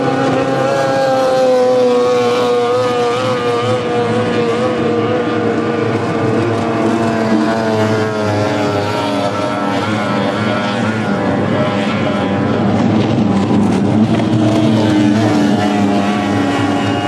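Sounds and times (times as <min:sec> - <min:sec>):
racing outboard motors passing: 0:00.0 - 0:17.0.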